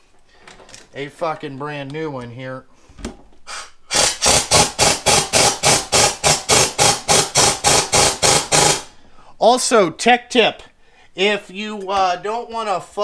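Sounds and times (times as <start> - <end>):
impact wrench hammering: 3.9 - 9.0.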